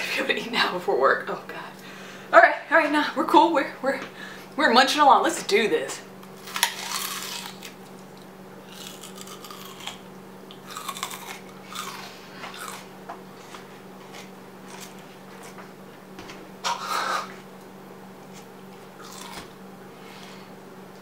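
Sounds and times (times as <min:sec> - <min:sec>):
crunch of biting raw onion: 0:06.4 - 0:08.0, 0:08.6 - 0:15.6, 0:18.3 - 0:19.6
wet crunching chewing: 0:06.4 - 0:15.6, 0:18.3 - 0:19.6.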